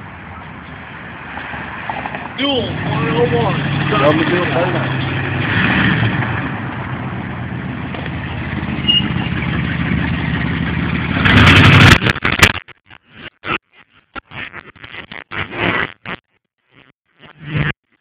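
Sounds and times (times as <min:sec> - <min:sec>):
truck engine through dual exhaust: 0:00.0 - 0:12.5.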